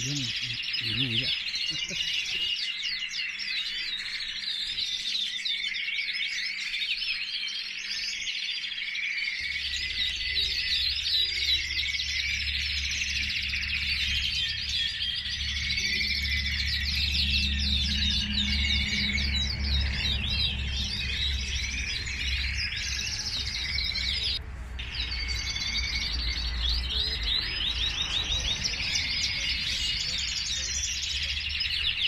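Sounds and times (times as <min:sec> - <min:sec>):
canaries singing: 0:00.0 - 0:32.0.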